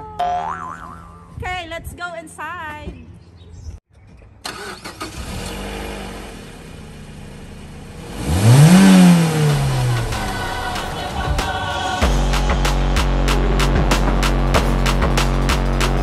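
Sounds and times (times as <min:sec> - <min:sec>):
car engine revving: 0:04.5 - 0:16.0.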